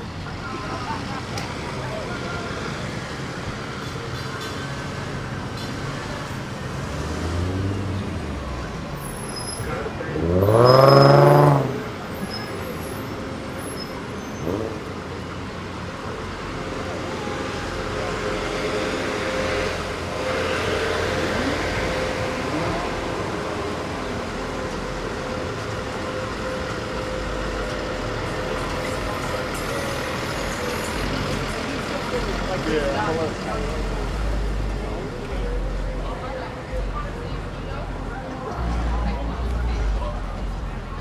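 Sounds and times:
car engine revving: 0:05.7 - 0:12.8, 0:14.4 - 0:15.4
bus engine idling: 0:11.6 - 0:41.0.

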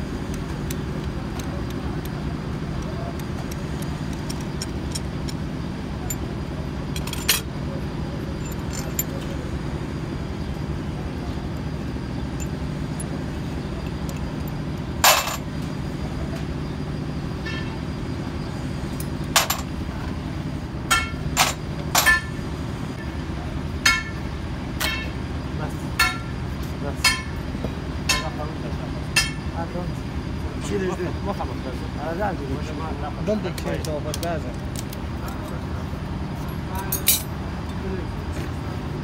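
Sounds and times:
low mechanical drone: 0:00.0 - 0:39.0
steel tools clinking on metal: 0:06.9 - 0:07.5, 0:08.4 - 0:09.4, 0:13.8 - 0:15.5, 0:27.0 - 0:27.4, 0:28.1 - 0:28.4, 0:29.1 - 0:29.6, 0:36.6 - 0:37.3.

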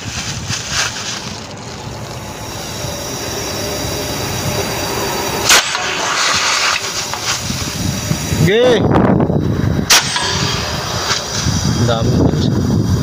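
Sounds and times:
gas hissing from a line: 0:00.0 - 0:13.0
sharp burst of gas: 0:02.6 - 0:08.9, 0:09.5 - 0:13.0.

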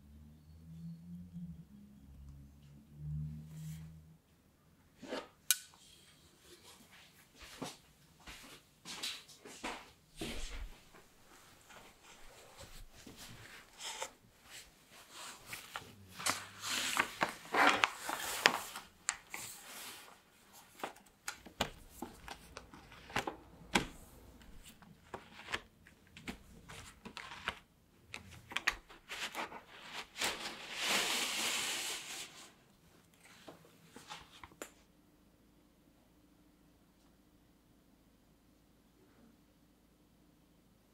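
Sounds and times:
baking parchment rustling: 0:11.6 - 0:27.7.

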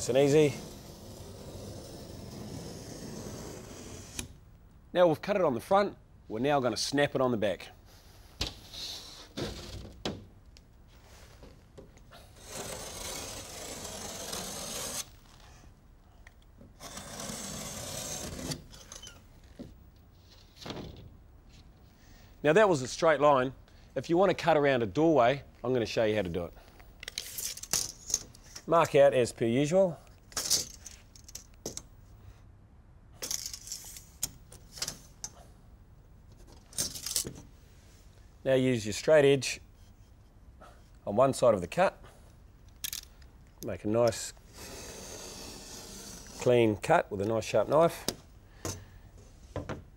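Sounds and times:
pencil scratching plasterboard: 0:12.2 - 0:15.1, 0:44.6 - 0:46.5
utility knife slicing paper: 0:12.4 - 0:15.1.

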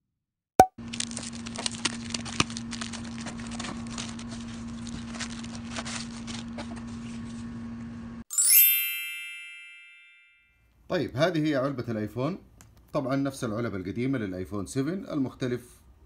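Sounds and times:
plastic packing crackling: 0:00.8 - 0:07.0
bright chime sound effect: 0:08.3 - 0:10.6.

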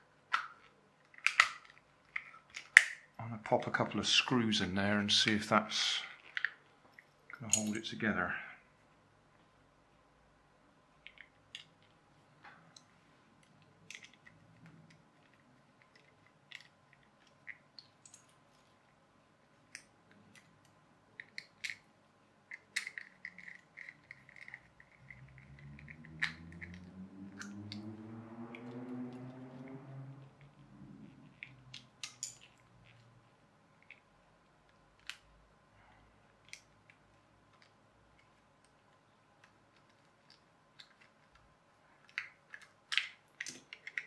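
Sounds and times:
low hum rising in pitch: 0:25.4 - 0:31.2.

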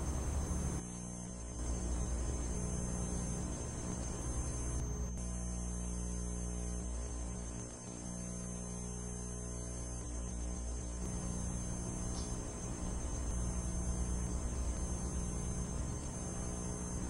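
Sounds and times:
faint hiss: 0:00.0 - 0:00.8
low droning hum: 0:00.0 - 0:17.0
thin high whine: 0:00.0 - 0:17.0.

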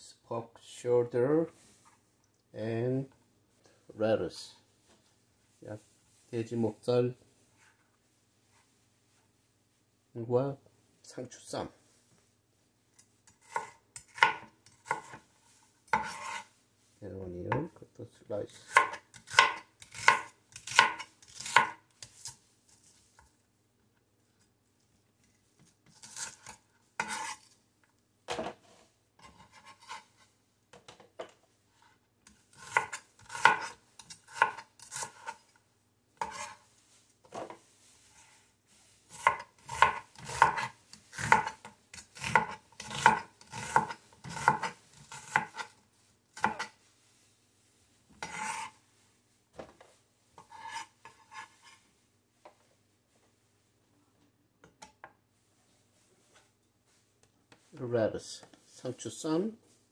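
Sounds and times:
knife chopping on cutting board: 0:13.4 - 0:15.2, 0:15.9 - 0:16.4, 0:18.6 - 0:21.8, 0:32.5 - 0:35.4, 0:36.2 - 0:36.6, 0:39.1 - 0:45.7, 0:46.4 - 0:46.7, 0:48.2 - 0:48.7.

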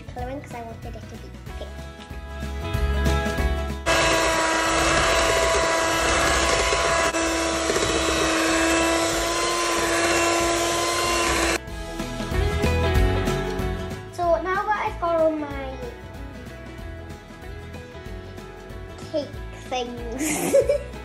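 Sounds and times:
electric hand mixer humming: 0:03.9 - 0:11.6.

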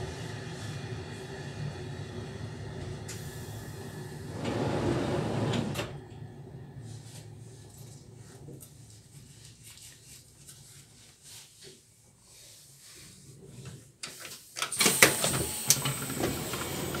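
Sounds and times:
train rumbling with light clicks: 0:00.0 - 0:09.6.

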